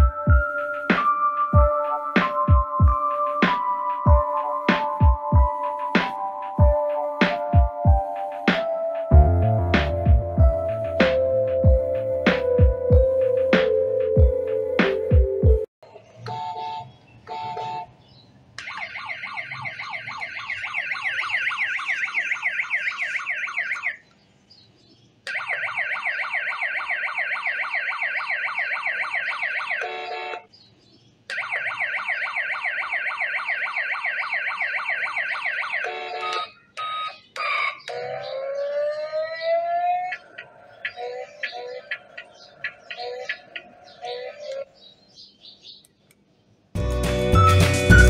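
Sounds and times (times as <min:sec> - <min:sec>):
warbling electronic siren: 0:18.6 - 0:24.0, 0:25.3 - 0:29.8, 0:31.3 - 0:44.6.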